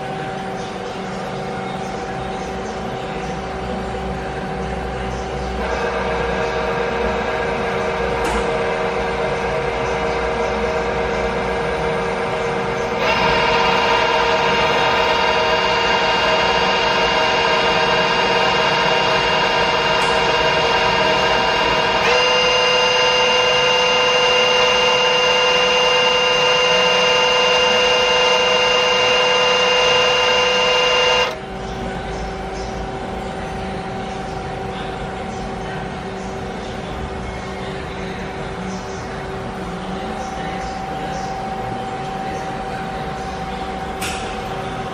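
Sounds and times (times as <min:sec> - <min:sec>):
lathe machine whine: 0:00.0 - 0:31.5
broad machine hum: 0:00.0 - 0:44.9.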